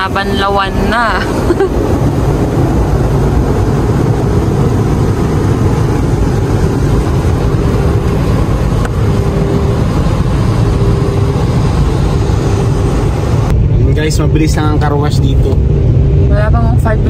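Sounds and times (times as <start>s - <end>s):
water spraying on car: 0.6s - 13.4s.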